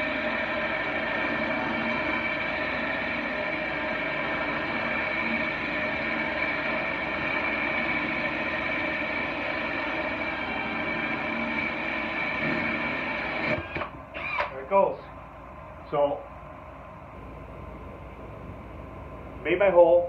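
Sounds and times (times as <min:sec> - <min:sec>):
drill grinding through glass: 0:01.1 - 0:14.5.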